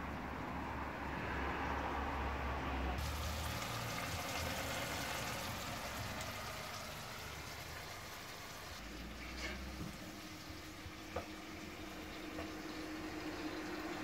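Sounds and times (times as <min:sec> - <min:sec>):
vegetables sizzling and bubbling: 0:03.0 - 0:14.0.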